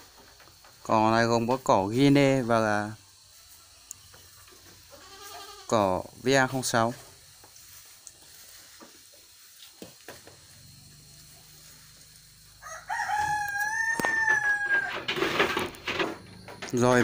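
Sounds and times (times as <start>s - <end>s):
hands rustling grass and bran: 6.2s - 17.0s
rooster crowing: 12.4s - 15.5s.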